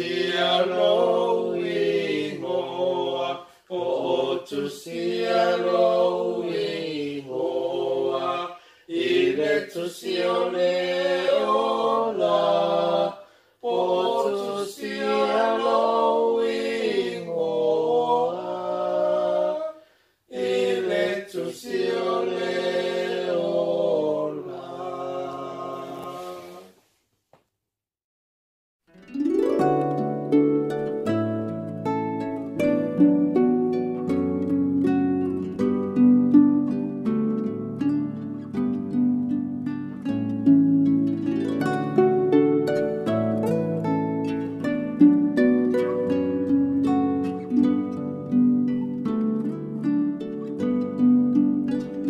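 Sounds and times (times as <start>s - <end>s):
a cappella group singing: 0.0s - 26.8s.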